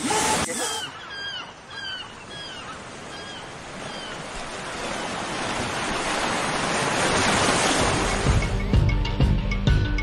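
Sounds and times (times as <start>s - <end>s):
waves breaking on sandy beach: 2.5s - 8.6s.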